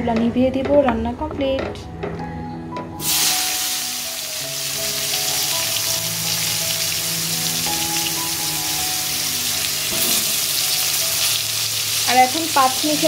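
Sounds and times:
eggplant frying in hot oil: 0:03.0 - 0:13.0.

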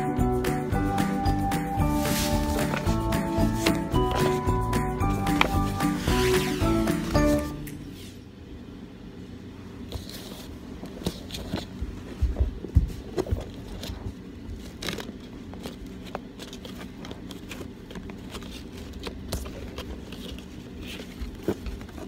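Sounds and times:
ribbon rustling against box: 0:01.8 - 0:07.6.

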